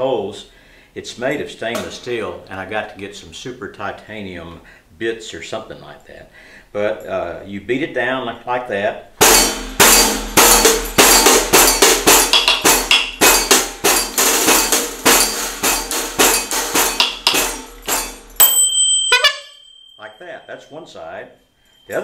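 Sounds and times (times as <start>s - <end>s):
beat stick played in steady beat: 9.2s - 20.6s
tambourine jingling: 9.2s - 22.0s
high ringing tone: 18.4s - 22.0s.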